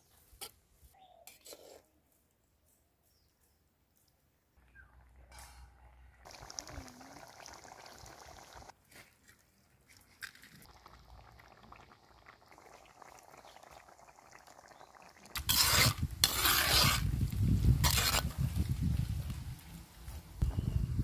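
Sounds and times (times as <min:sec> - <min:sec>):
spoon scraping a pot: 0:01.2 - 0:01.9, 0:15.4 - 0:17.1, 0:17.8 - 0:18.3
curry simmering in a pot: 0:06.2 - 0:08.7, 0:10.6 - 0:17.0.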